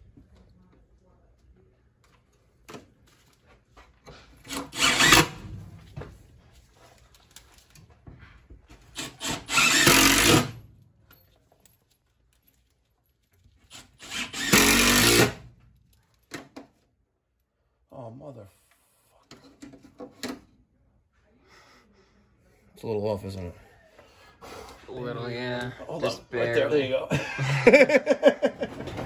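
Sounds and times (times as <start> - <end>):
cordless drill driving screws: 4.4 - 5.4, 9.0 - 10.6, 13.7 - 15.4.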